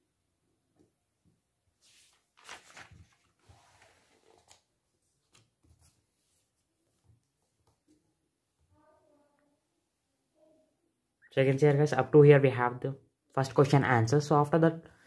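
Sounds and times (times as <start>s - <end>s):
book page turning: 1.8s - 8.0s.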